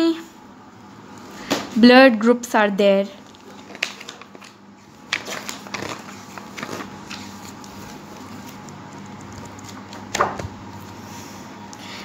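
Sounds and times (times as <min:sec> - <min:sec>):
faint steady hum: 0:00.0 - 0:12.0
book pages flipping: 0:03.2 - 0:11.3.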